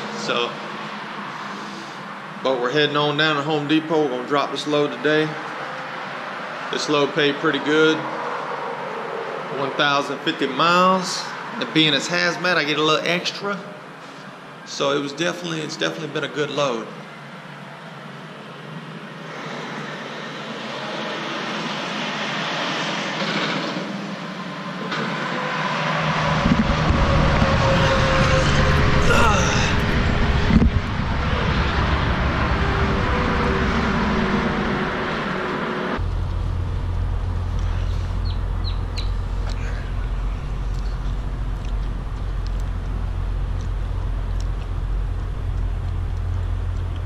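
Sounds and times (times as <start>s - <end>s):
truck engines roaring: 0.0s - 47.0s
low rumble: 26.1s - 47.0s
diesel truck engine idling: 34.0s - 47.0s.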